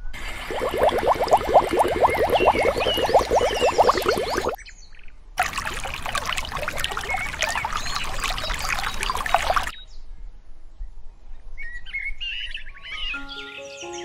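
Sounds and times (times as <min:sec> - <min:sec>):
water splashing into a dish: 0:00.0 - 0:04.6, 0:05.4 - 0:09.7.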